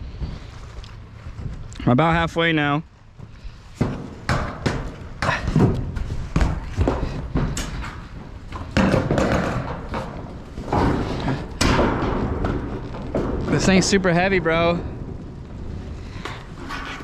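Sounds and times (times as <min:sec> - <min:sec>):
thumps on metal roof panel: 0:03.8 - 0:13.6.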